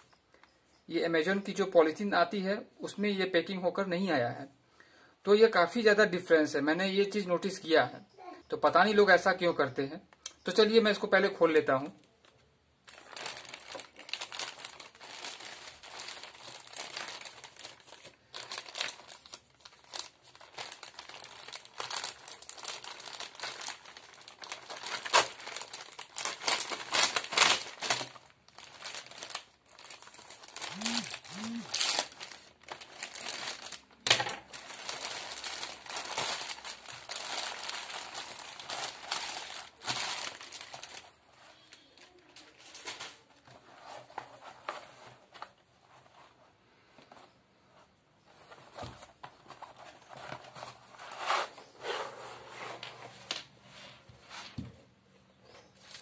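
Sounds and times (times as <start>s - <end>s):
plastic bag crinkling and rustling: 12.2s - 46.0s.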